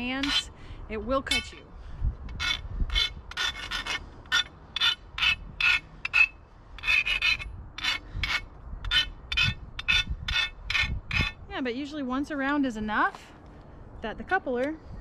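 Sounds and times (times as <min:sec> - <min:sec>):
hand file scraping steel pipe: 0:00.0 - 0:00.5, 0:02.3 - 0:11.4.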